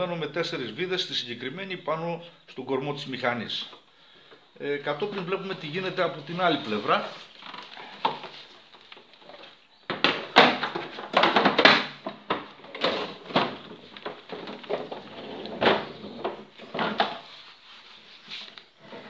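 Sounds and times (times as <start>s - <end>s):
plastic mower body knocking and scraping: 7.4s - 17.3s.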